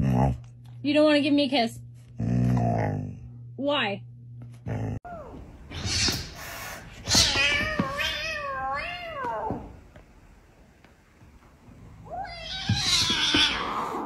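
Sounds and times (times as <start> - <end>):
kittens meowing: 12.1 - 14.0.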